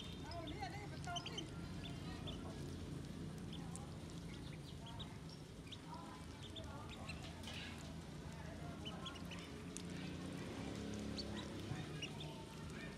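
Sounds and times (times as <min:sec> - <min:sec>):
ducklings peeping: 0:00.0 - 0:02.6, 0:03.4 - 0:07.6, 0:08.7 - 0:09.6, 0:11.0 - 0:12.9.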